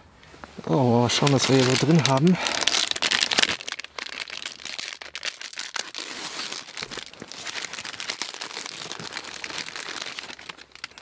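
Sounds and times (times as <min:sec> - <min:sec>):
plastic wrapping crinkling: 0:00.6 - 0:11.0.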